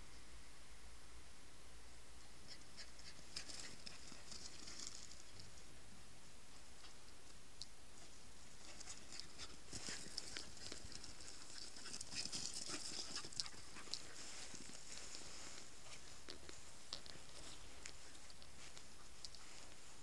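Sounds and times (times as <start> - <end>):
footsteps on grass: 12.1 - 20.0.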